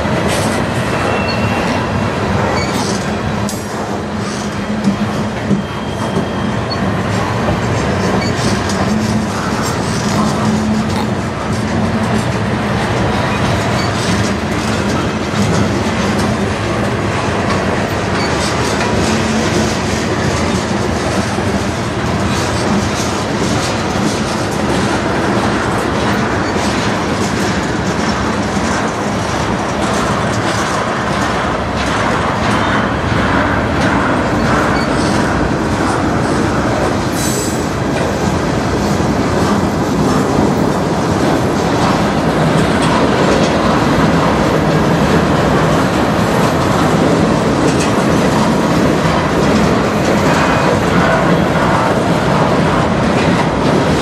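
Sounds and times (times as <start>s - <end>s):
freight train wheels on rail: 0.0s - 54.0s
wheels clacking over rail joints: 0.0s - 54.0s
short high squeal: 1.0s - 1.8s.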